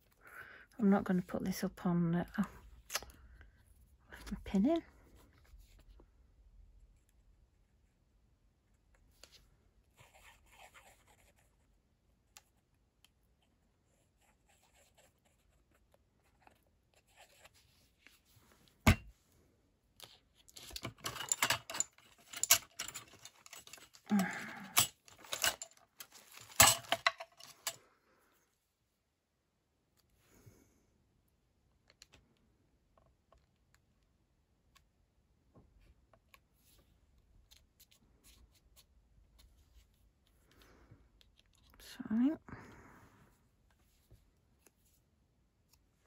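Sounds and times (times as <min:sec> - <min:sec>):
rustling of craft supplies: 0:09.0 - 0:28.8
plastic packets clicking and clacking: 0:20.0 - 0:27.8.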